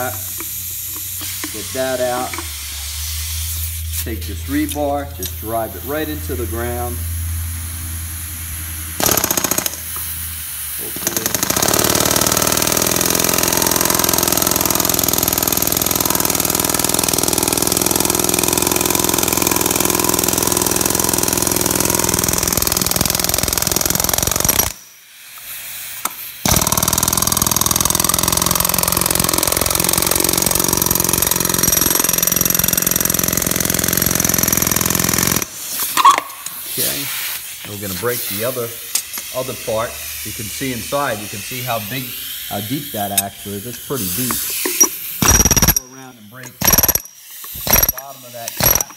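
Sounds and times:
electric power hammer hammering: 8.9s - 10.1s, 10.9s - 24.8s, 26.0s - 35.6s, 44.7s - 45.9s, 46.5s - 48.9s.

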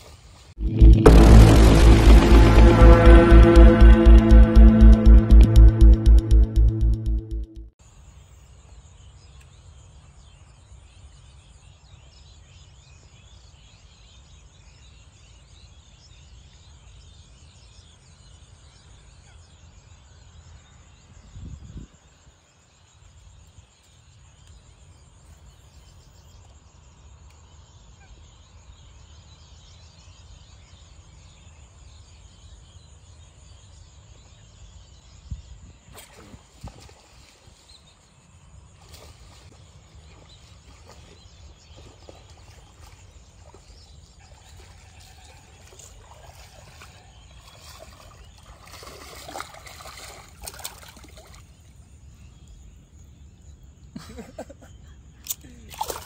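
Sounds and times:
low rumble: 0.6s - 7.7s
bird calls: 38.8s - 56.0s.

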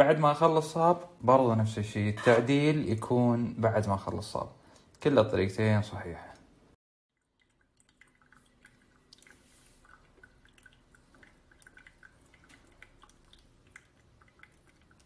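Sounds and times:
small dripping blips: 7.1s - 15.0s
thin stream of water pouring: 7.1s - 15.0s.

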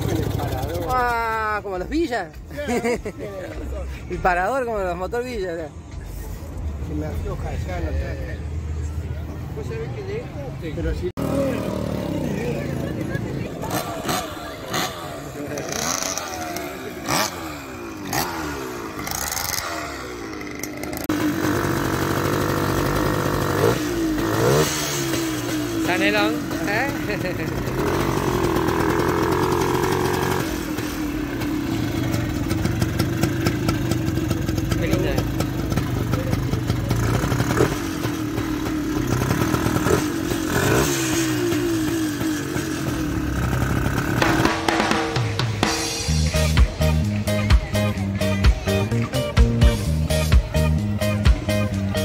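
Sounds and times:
motorcycle engines running: 0.0s - 5.4s, 6.2s - 52.0s.

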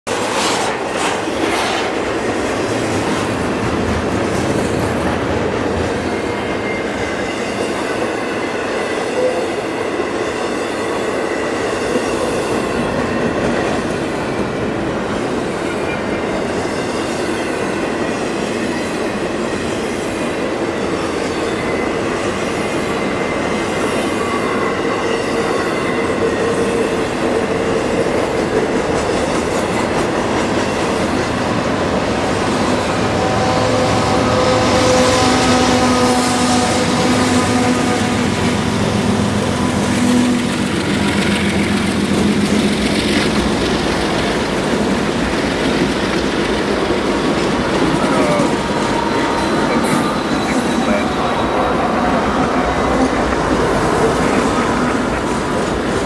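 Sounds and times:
steel wheels running on rail: 0.1s - 56.0s
high wheel squeal: 47.6s - 53.2s.

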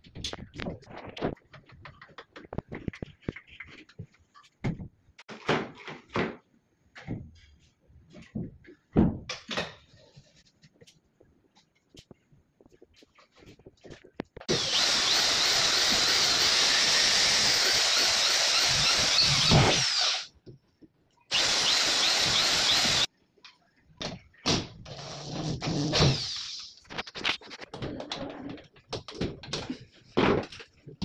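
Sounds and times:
electric drill drilling into metal: 14.5s - 20.3s, 21.3s - 23.1s, 26.1s - 26.7s.

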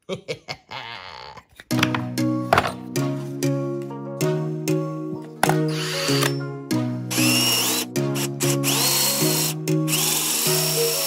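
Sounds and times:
background music: 1.6s - 11.0s
drill press whine cutting wood: 5.7s - 6.3s, 7.1s - 11.0s.

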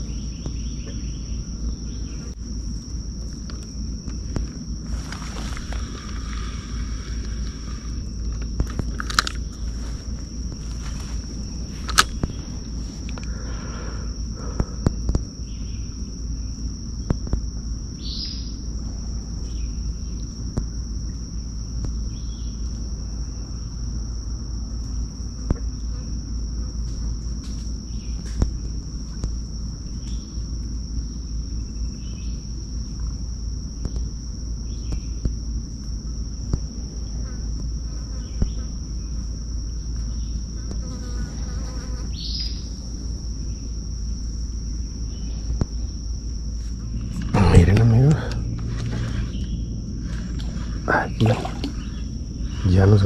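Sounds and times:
insects droning: 0.0s - 53.0s
faint bird chirps: 18.0s - 18.6s
low rumble: 46.5s - 53.0s.

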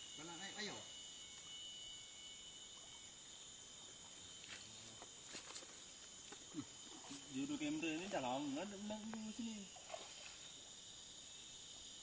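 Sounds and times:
high-pitched insect drone: 0.0s - 12.0s.

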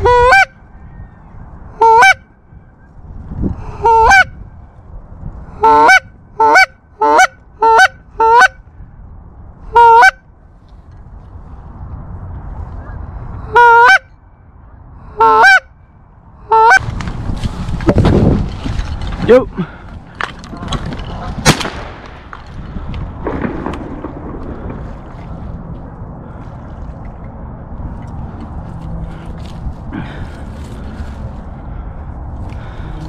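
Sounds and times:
goose honks: 0.0s - 0.6s, 1.8s - 2.2s, 5.6s - 8.6s, 9.7s - 10.2s, 13.5s - 14.1s, 15.2s - 15.7s, 16.5s - 16.8s
low wind rumble: 0.0s - 33.0s.

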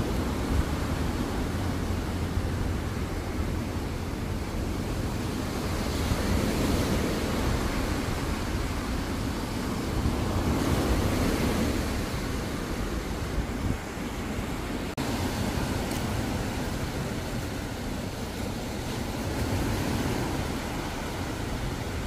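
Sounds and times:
waves washing up a beach: 0.0s - 22.0s.

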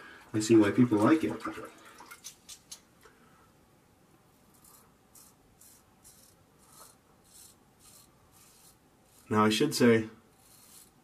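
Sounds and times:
razor scraping stubble: 4.5s - 9.4s, 10.3s - 11.0s.

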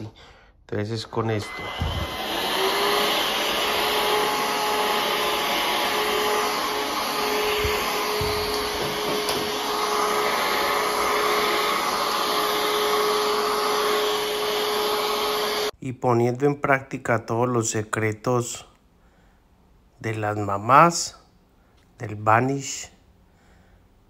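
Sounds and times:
stick vacuum cleaner running: 1.2s - 15.7s.

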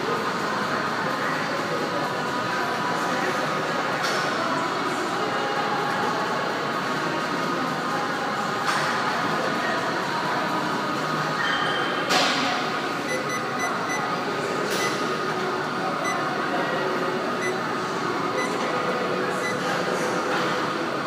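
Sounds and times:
noisy hum: 12.3s - 21.0s.

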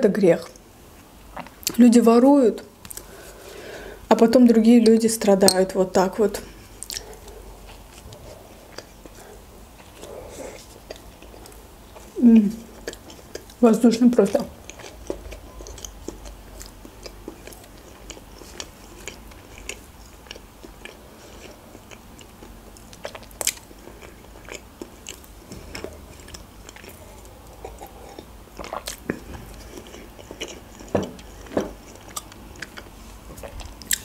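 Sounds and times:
chewing with wet mouth clicks: 6.8s - 13.6s, 14.3s - 34.0s.

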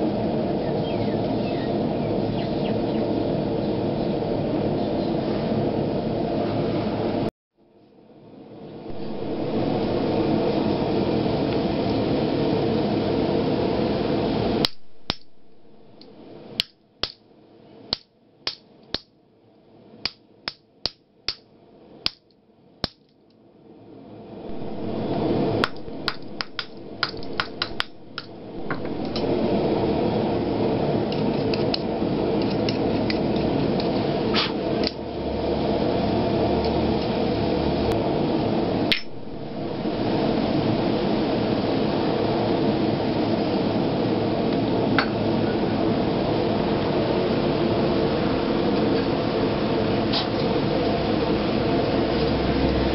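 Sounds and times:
steady rushing noise: 8.6s - 16.7s, 23.6s - 52.9s
hammer striking metal: 25.6s - 29.3s.

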